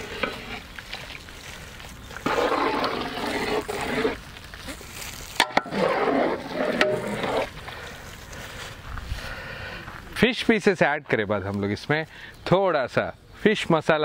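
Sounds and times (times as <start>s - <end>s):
ladle stirring thick liquid: 0.0s - 1.3s, 2.0s - 4.3s.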